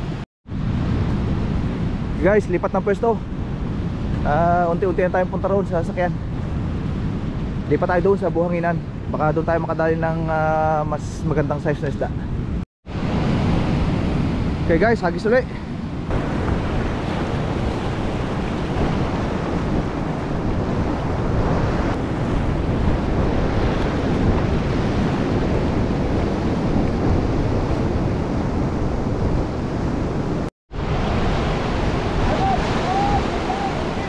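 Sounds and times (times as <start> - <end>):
wind buffeting microphone: 0.0 - 34.0
ocean surf breaking over rocks: 12.9 - 34.0.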